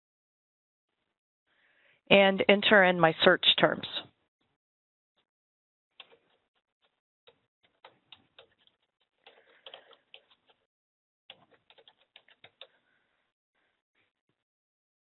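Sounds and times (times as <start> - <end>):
faint keyboard typing: 6.0 - 6.4, 7.3 - 10.7, 11.3 - 12.8.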